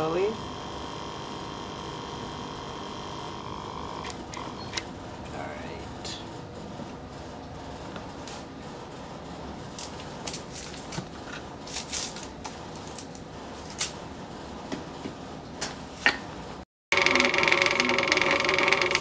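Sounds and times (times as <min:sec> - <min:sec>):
stir plate motor hum: 0:00.0 - 0:05.0, 0:16.9 - 0:19.0.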